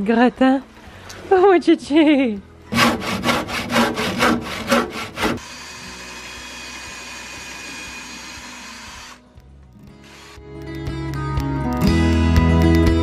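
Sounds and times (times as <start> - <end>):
hand saw cutting wood: 2.7 - 9.2
cordless drill driving a screw: 5.3 - 9.2, 10.0 - 10.5.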